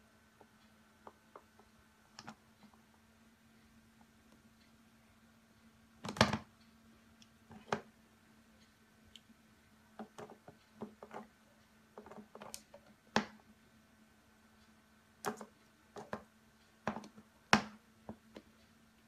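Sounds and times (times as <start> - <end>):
faint steady hum: 0.0 - 19.0
cat paws tapping plastic: 15.2 - 18.5.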